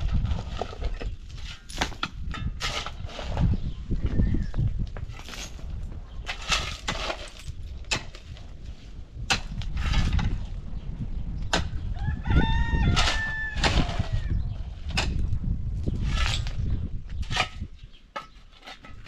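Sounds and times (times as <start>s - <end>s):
metal shovels scraping stony ground: 0.0s - 3.6s, 5.0s - 10.6s, 12.9s - 19.0s
rooster crowing: 11.9s - 14.2s.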